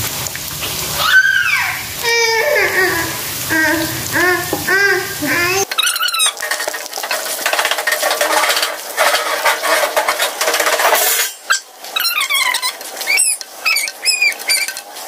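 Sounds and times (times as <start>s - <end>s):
dough sizzling in hot oil: 0.0s - 15.0s
spatula scraping wok: 3.7s - 15.0s
short high squeaks: 5.7s - 6.4s, 11.1s - 14.8s.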